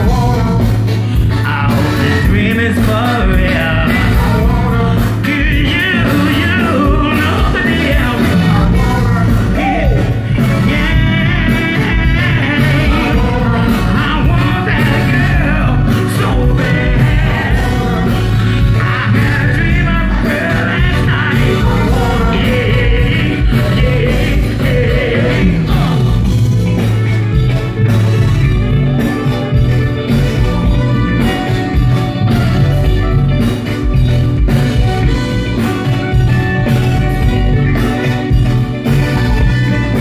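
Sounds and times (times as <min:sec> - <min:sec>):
person singing: 0:00.0 - 0:26.9
bass line: 0:00.0 - 0:40.0
live band music: 0:00.0 - 0:40.0.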